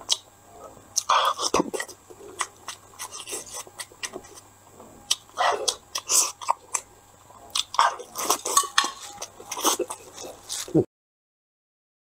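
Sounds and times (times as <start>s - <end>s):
lip smacks: 0.1s - 0.3s, 1.0s - 4.4s, 5.1s - 6.9s, 7.5s - 10.8s
wet chewing: 1.0s - 10.8s.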